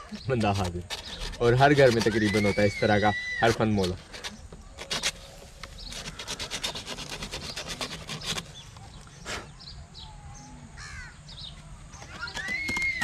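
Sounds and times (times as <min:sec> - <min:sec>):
emery paper tearing: 0:00.0 - 0:08.8.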